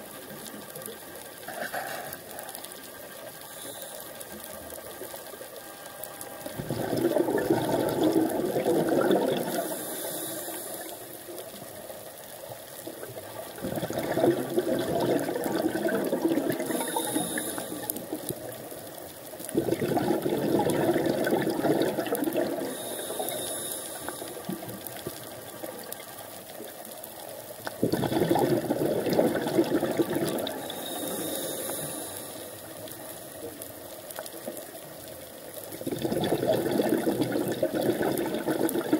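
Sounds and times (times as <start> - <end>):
regulator inhalation hiss: 3.5 - 4.4, 9.5 - 11.4, 16.6 - 18.2, 22.6 - 24.7, 30.5 - 32.9
exhaled bubbles rushing: 6.5 - 9.8, 13.0 - 18.3, 19.4 - 23.1, 27.7 - 31.0, 35.7 - 38.9.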